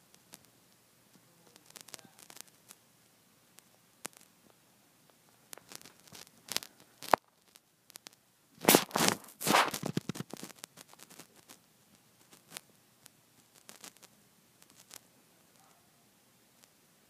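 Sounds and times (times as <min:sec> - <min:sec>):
scraping rustle: 0:08.6 - 0:11.6.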